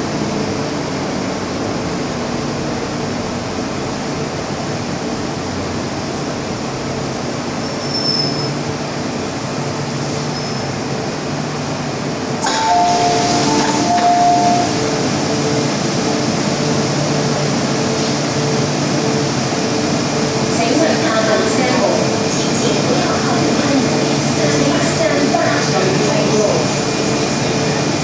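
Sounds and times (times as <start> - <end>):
train running hum: 0.0 - 28.0
train doors hissing open: 12.4 - 14.8
two-tone door chime: 12.5 - 14.8.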